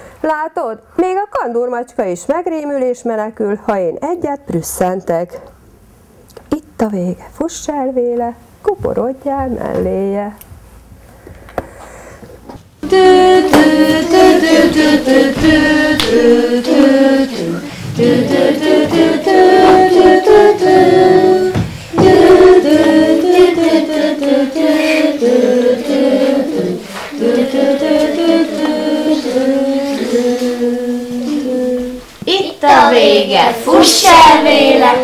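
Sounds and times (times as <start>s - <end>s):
several voices singing together: 12.8s - 35.0s.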